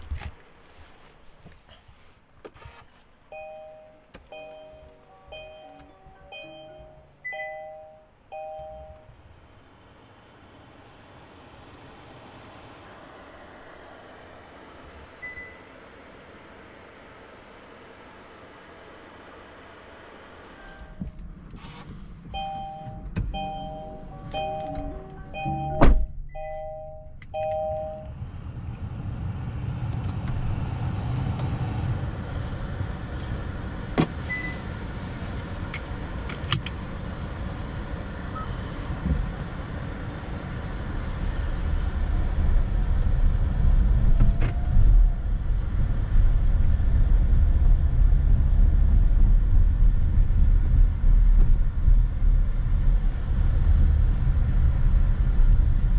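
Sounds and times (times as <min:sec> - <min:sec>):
car warning chime: 0:03.3 - 0:09.1, 0:15.2 - 0:15.7, 0:22.3 - 0:28.2
car driving off rumble: 0:27.9 - 0:55.9.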